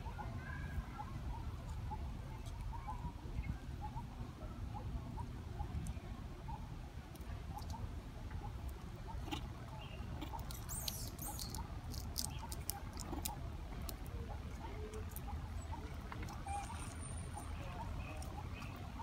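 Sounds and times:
monkey chirps: 0:08.5 - 0:13.4, 0:14.5 - 0:19.0.

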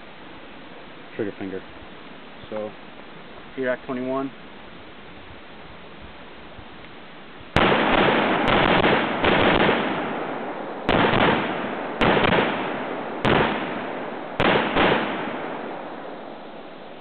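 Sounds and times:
rifle shots: 0:07.5 - 0:16.4
gunshot echo: 0:07.6 - 0:16.3.

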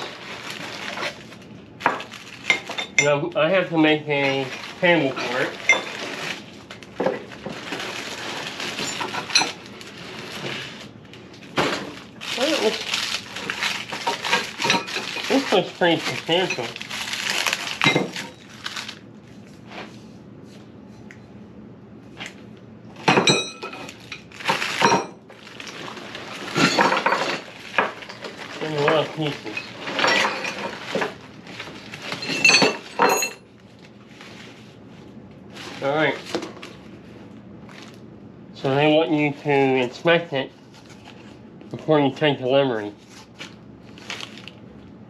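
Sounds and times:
plastic packaging crinkling: 0:00.0 - 0:19.6, 0:23.7 - 0:34.8, 0:35.4 - 0:38.1, 0:43.0 - 0:44.9
metal parts clanking and rattling: 0:04.2 - 0:06.3, 0:07.0 - 0:09.7, 0:13.4 - 0:16.8, 0:17.6 - 0:18.4, 0:23.0 - 0:25.2, 0:26.3 - 0:31.2, 0:31.8 - 0:33.4.

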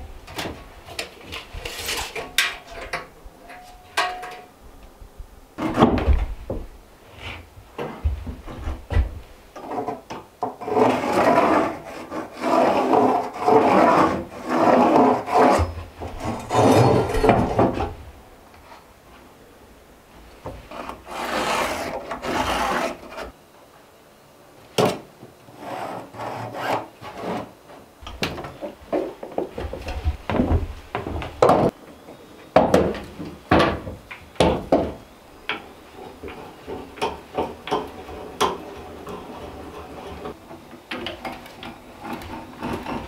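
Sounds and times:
rubbing and scraping on wood: 0:00.9 - 0:02.9, 0:07.1 - 0:18.0, 0:20.5 - 0:23.4, 0:25.5 - 0:31.8, 0:35.9 - 0:40.4, 0:41.5 - 0:43.0.

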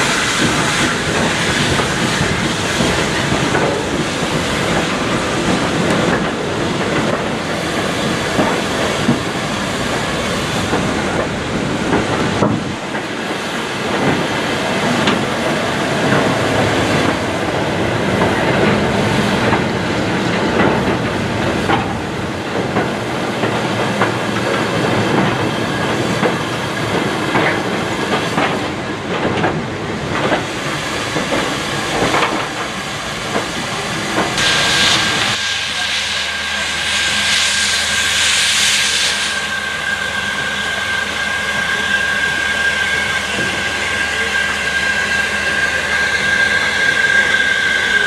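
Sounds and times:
train wheels clicking over rail joints: 0:00.0 - 0:35.4
steam hissing: 0:30.4 - 0:48.0.

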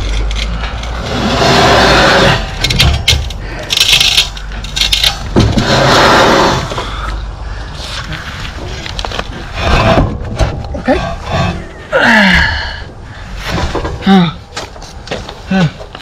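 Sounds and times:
steel lintel scraping over brickwork: 0:00.0 - 0:07.1, 0:08.2 - 0:11.9.

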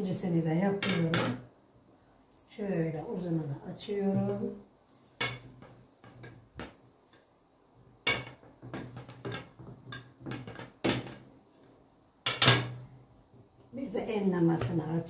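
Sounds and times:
rolling pin knocking on table: 0:08.0 - 0:11.3.

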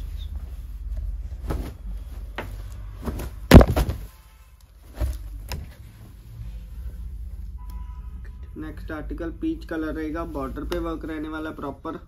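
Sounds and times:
fabric rustling: 0:00.0 - 0:07.3
dull thumps: 0:02.4 - 0:04.1.

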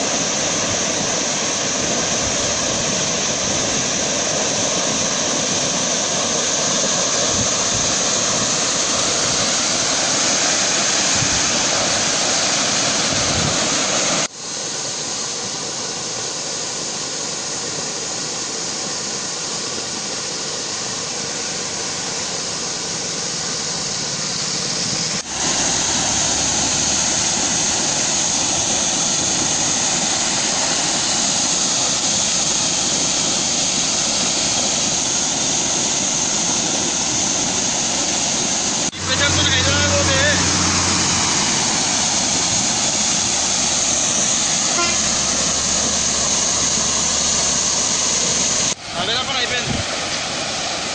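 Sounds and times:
high pressure water jet rushing: 0:00.0 - 0:50.9.

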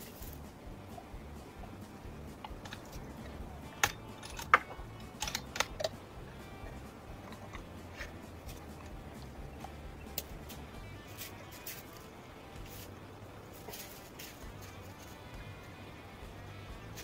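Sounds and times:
gear clicking and knocking on wood: 0:02.3 - 0:12.0.

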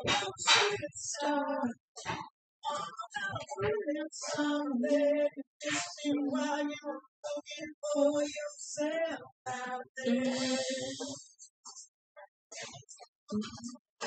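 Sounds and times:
high voice singing: 0:00.0 - 0:11.4.

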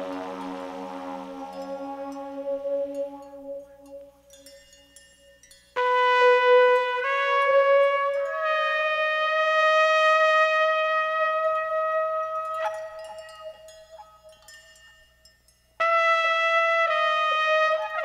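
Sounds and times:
brass horn held notes: 0:00.0 - 0:04.6, 0:05.8 - 0:14.2, 0:15.8 - 0:18.0
faint held tone: 0:00.0 - 0:05.9.

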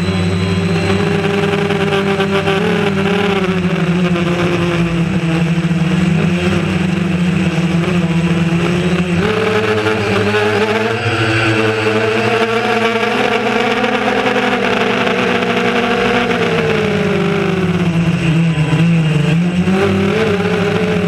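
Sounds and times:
quadcopter propellers buzzing: 0:00.0 - 0:21.0.

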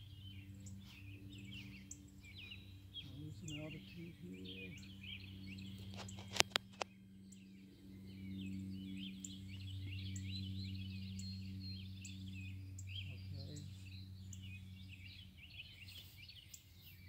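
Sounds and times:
birds chirping: 0:00.0 - 0:17.0
model plane motor droning: 0:00.0 - 0:17.0
sharp clicks: 0:05.8 - 0:07.0.

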